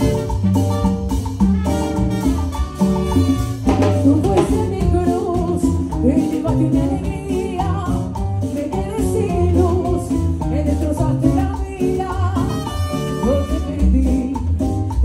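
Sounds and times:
latin dance band playing: 0:00.0 - 0:15.0
woman singing lead vocal: 0:03.9 - 0:15.0.

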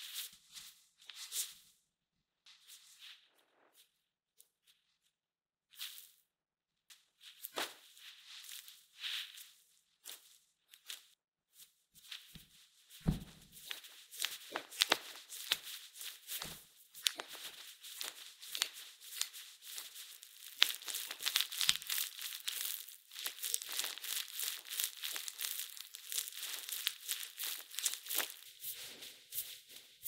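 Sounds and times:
sticky dough kneaded by hand: 0:12.1 - 0:30.0.

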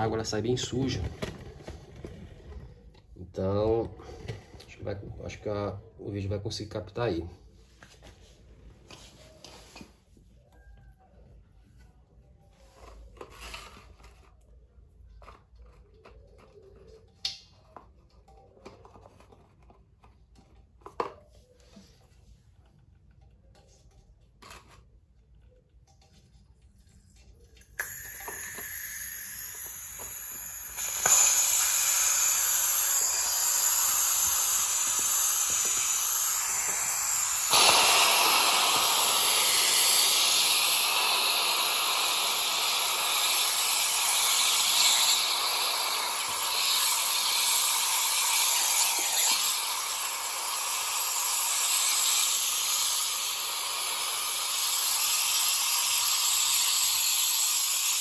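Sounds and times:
compressed air hissing from valve: 0:27.7 - 0:58.0.

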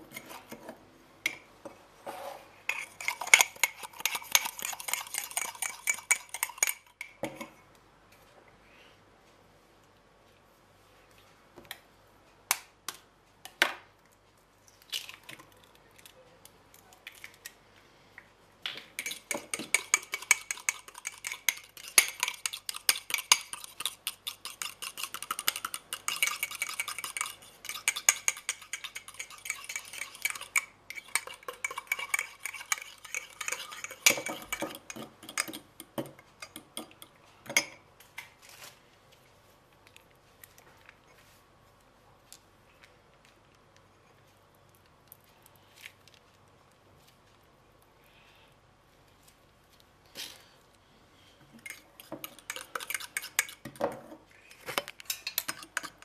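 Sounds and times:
spoon stirring in ceramic mug: 0:02.7 - 0:07.6, 0:19.0 - 0:37.9, 0:51.6 - 0:56.0.

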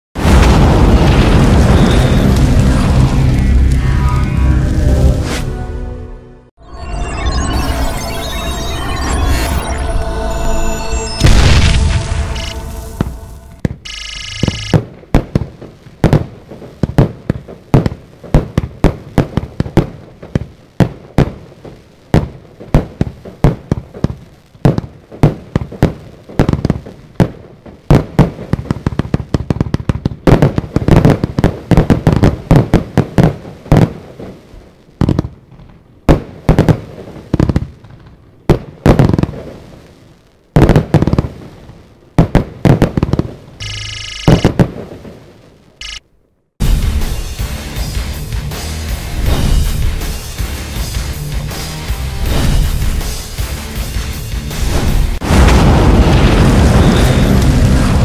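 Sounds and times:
firework cake volley: 0:00.2 - 0:03.6, 0:52.2 - 0:58.0.

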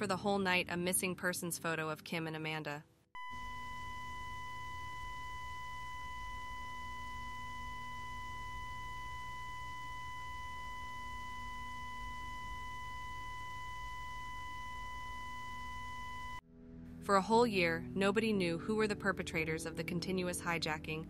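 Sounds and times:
high electronic test tone: 0:03.2 - 0:16.4
low hum: 0:03.2 - 0:17.2.

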